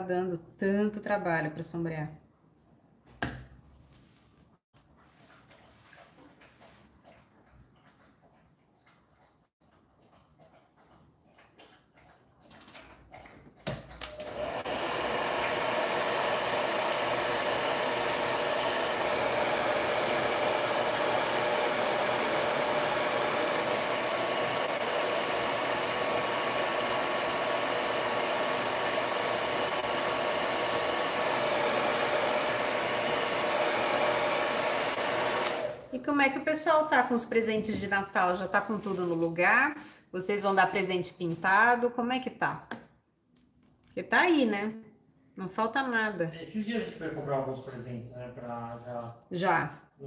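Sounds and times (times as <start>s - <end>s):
hair dryer blowing: 14.0s - 35.9s
hair dryer switch click: 35.4s - 35.7s.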